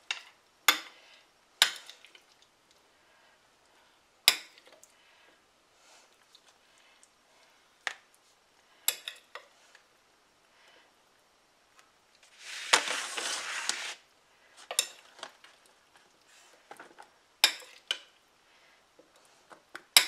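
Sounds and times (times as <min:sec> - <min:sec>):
spoon scraping: 0:12.3 - 0:14.0.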